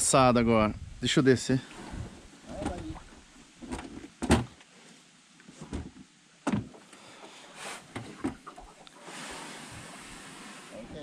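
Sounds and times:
knocks and thumps: 3.6 - 4.6, 5.6 - 6.8.

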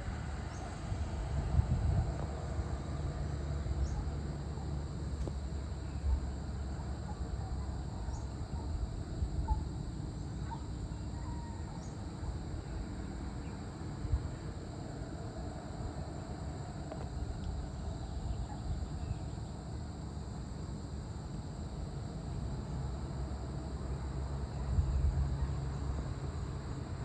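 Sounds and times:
steady low rumble: 0.0 - 10.2
high insect chirps: 0.2 - 27.0.

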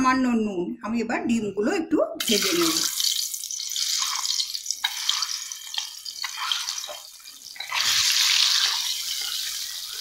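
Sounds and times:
eggs sizzling in hot oil: 2.2 - 10.0.

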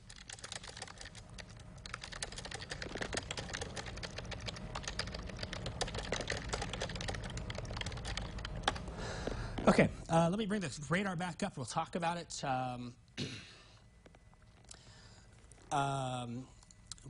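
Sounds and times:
computer keyboard typing: 0.0 - 8.9
steady low hum: 0.0 - 17.0.

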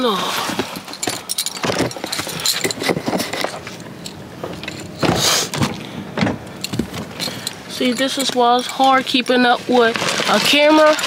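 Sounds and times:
light metallic jingling: 0.7 - 5.1, 6.3 - 9.6
clothing rustle: 6.6 - 11.0.

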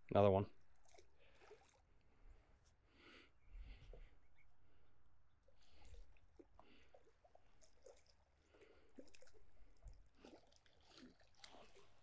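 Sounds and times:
fish splashing at water surface: 0.8 - 1.9, 5.6 - 12.0.

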